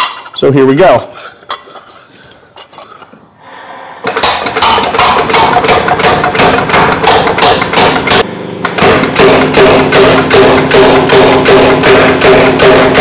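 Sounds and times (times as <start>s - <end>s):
power hammer blows on ringing metal: 3.9s - 13.0s.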